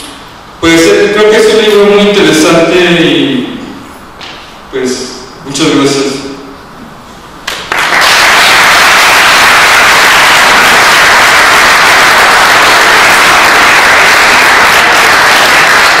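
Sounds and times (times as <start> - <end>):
audience applauding: 7.5 - 16.0.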